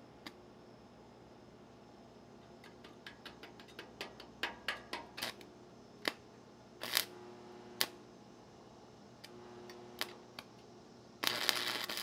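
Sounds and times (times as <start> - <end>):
welding arc crackling: 4.4 - 6.2, 6.8 - 8.0, 9.3 - 10.5, 11.2 - 12.0.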